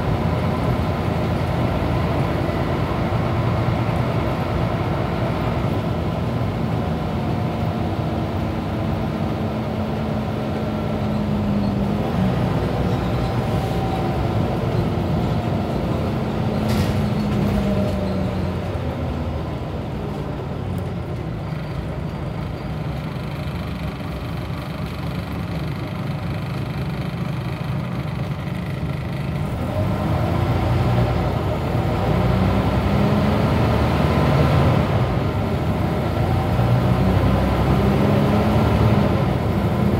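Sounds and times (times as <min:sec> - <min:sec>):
bus engine: 0:00.0 - 0:39.9.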